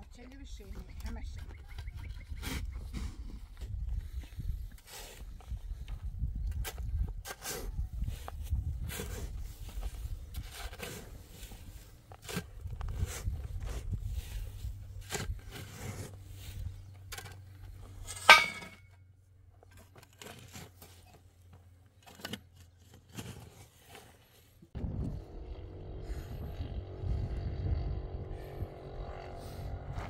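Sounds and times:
ringing metallic clank: 0:18.1 - 0:18.9
motor hum with low rumble: 0:24.8 - 0:30.0.

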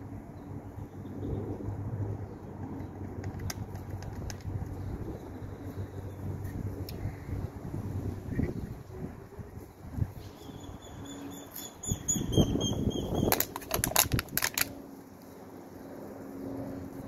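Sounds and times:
wind: 0:00.0 - 0:17.0
small bird chirping: 0:10.3 - 0:13.4
sharp clicks: 0:13.3 - 0:14.8.

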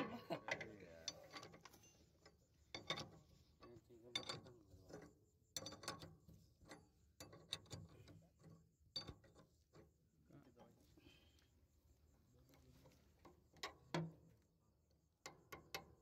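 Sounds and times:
spanner clicking on a nut: 0:00.5 - 0:10.0, 0:15.0 - 0:16.0.

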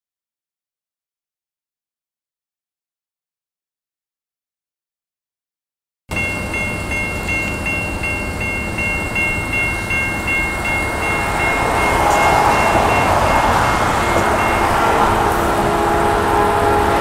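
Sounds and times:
freight train rushing: 0:06.1 - 0:17.0
railroad crossing bell ringing: 0:06.1 - 0:17.0
train horn: 0:09.8 - 0:17.0.

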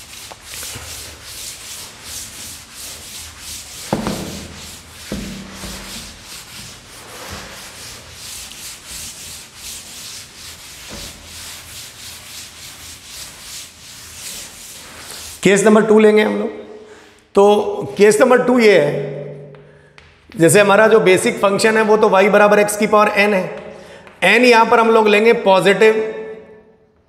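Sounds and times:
duster rubbing chalkboard: 0:00.0 - 0:15.6
sharp knocks: 0:03.9 - 0:05.9.

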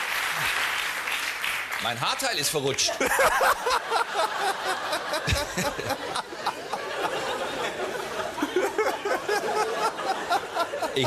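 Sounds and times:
studio audience laughing: 0:02.8 - 0:11.0.

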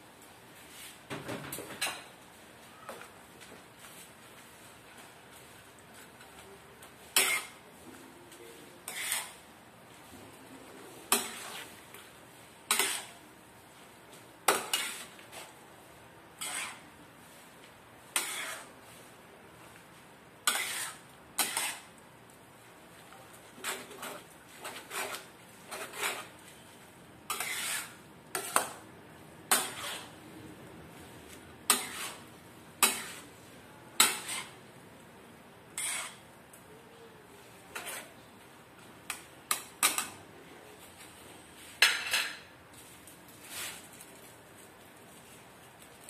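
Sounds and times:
spatula scraping a wok: 0:03.8 - 0:07.9, 0:08.5 - 0:10.2, 0:10.9 - 0:13.2, 0:13.8 - 0:15.6, 0:16.3 - 0:19.8, 0:20.4 - 0:22.0, 0:23.4 - 0:28.8, 0:29.5 - 0:30.2, 0:30.9 - 0:34.7, 0:35.7 - 0:36.4, 0:37.4 - 0:38.3.

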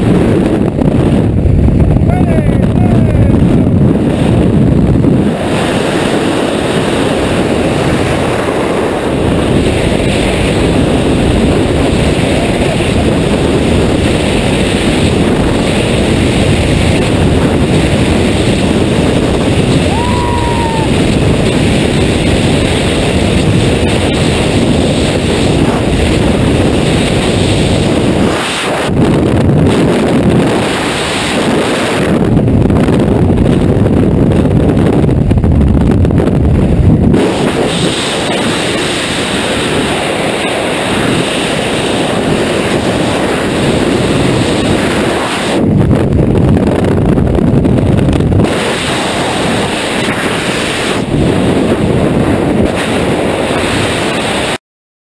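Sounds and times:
wind roaring over microphone: 0:00.0 - 0:54.6.

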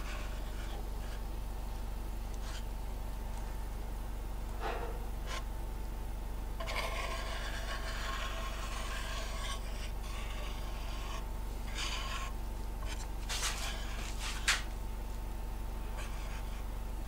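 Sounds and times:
spreader scraping wooden board: 0:06.6 - 0:14.7.

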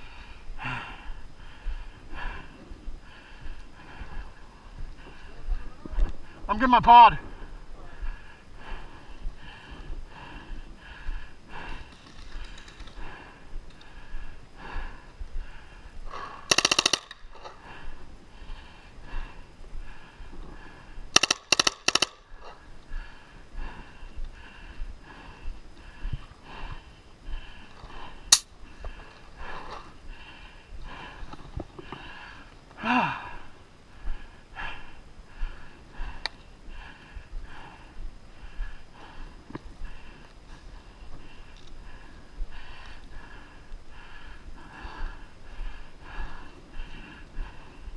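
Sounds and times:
person panting: 0:00.0 - 0:06.6, 0:07.2 - 0:47.9
paintball marker full-auto burst: 0:16.5 - 0:17.4, 0:21.2 - 0:22.2.

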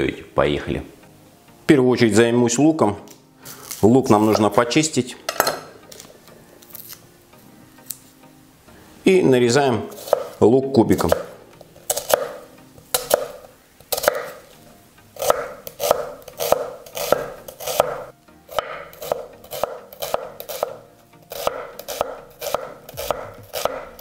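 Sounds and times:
knife chopping on wooden board: 0:09.9 - 0:10.4, 0:11.0 - 0:14.4, 0:15.2 - 0:24.0.

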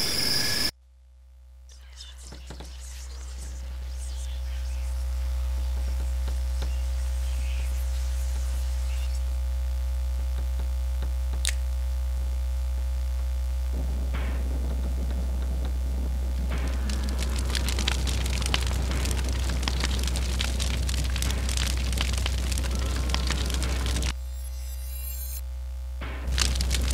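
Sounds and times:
deep low drone: 0:11.8 - 0:26.9
rough crackling noise: 0:13.6 - 0:24.2, 0:26.1 - 0:26.9
faint crackling: 0:13.8 - 0:24.1.

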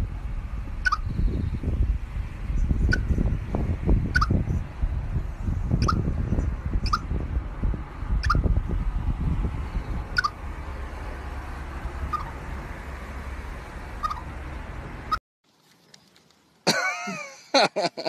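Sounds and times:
low rumble: 0:00.0 - 0:15.2
chipmunk chirping: 0:00.8 - 0:01.3, 0:02.6 - 0:03.1, 0:04.1 - 0:04.5, 0:05.8 - 0:06.1, 0:06.8 - 0:07.1, 0:08.2 - 0:08.5, 0:10.1 - 0:10.4, 0:12.0 - 0:12.4, 0:14.0 - 0:14.3.

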